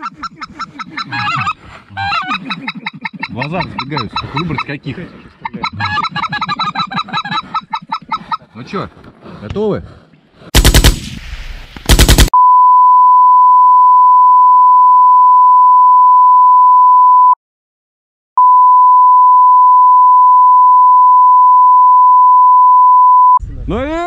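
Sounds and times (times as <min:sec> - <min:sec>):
high-pitched censor bleep: 0:12.4 - 0:17.4, 0:18.4 - 0:23.4.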